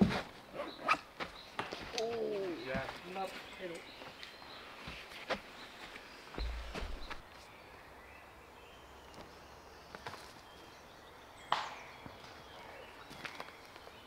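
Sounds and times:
distant birdsong: 0.0 - 14.0
twigs ticking and snapping underfoot: 1.2 - 7.5, 13.0 - 14.0.

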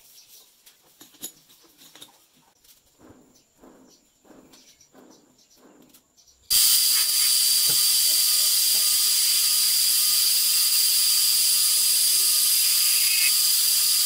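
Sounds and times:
loud hissing machine noise: 6.5 - 14.0.

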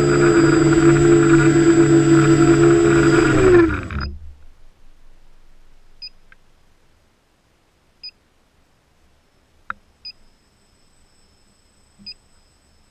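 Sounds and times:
faint high whine: 9.1 - 12.9.

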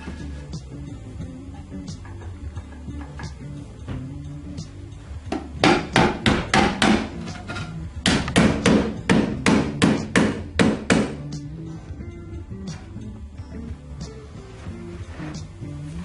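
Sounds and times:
hammer striking wood: 5.3 - 7.2, 8.0 - 11.2.

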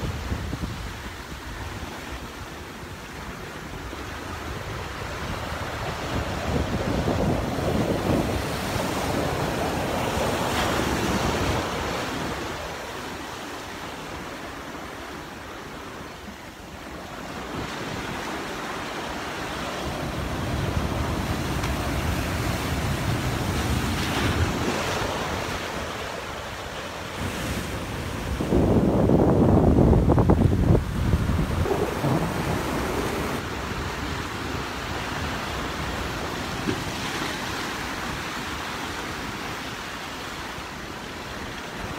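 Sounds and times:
waves breaking over rocks: 3.2 - 41.9
wind buffeting microphone: 3.6 - 12.7, 27.1 - 36.9.

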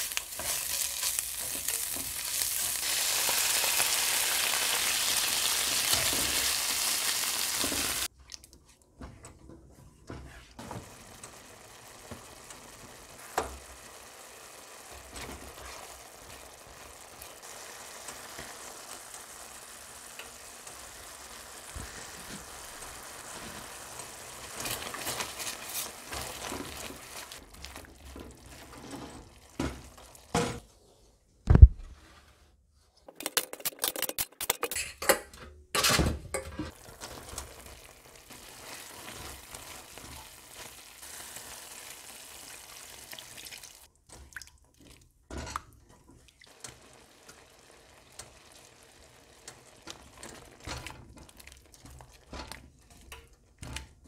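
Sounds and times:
sauce simmering and sizzling: 0.0 - 8.1, 10.3 - 30.6, 36.7 - 54.0
loud thump: 31.5 - 31.9.

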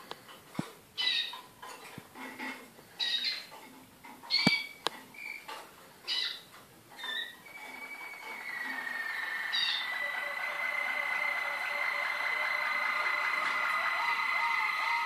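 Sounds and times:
canaries chirping and singing: 1.0 - 1.5, 3.0 - 3.6, 4.2 - 15.0.

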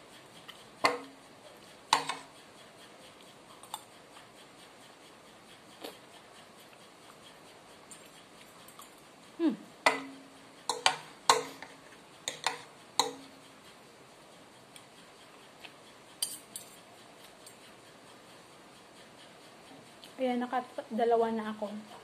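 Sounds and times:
cutlery clinking on ceramic dishes: 12.3 - 13.2.

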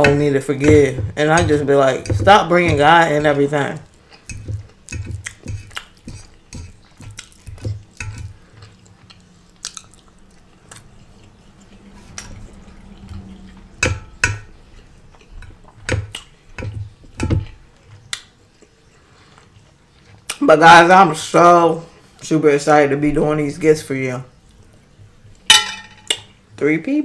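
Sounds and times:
close chewing and mouth sounds: 0.0 - 22.7, 23.3 - 25.5
fork clinking and scraping on plate: 4.2 - 8.4.

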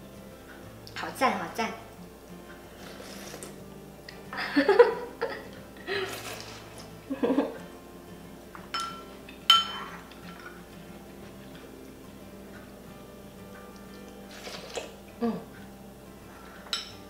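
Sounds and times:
soup slurping: 2.7 - 3.6, 6.0 - 6.9, 14.2 - 15.0
spoon clinking on porcelain bowl: 8.7 - 10.5, 16.6 - 17.0.

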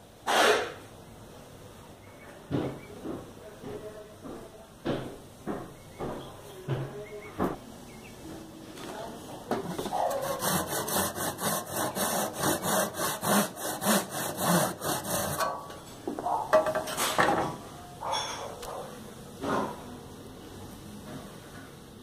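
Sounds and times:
knocks: 2.5 - 7.6
hand saw cutting wood: 9.8 - 15.6.

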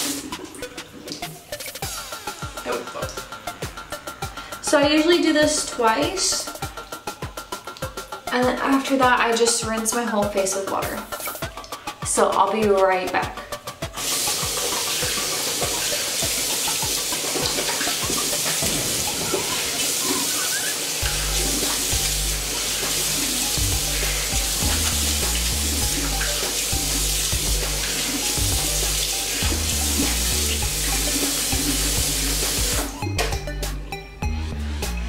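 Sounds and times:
background music with bass beat: 6.4 - 35.0
water splashing on face: 13.9 - 33.0.

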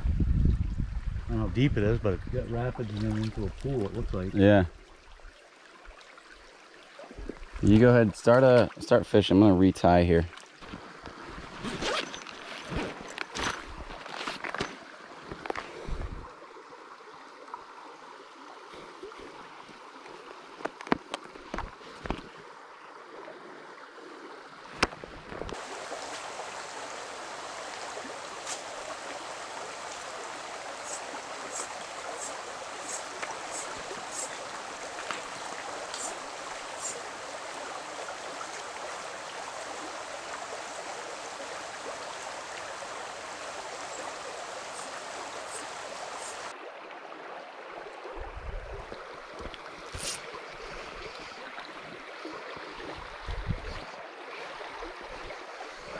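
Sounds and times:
water rushing over rocks: 24.6 - 46.6.

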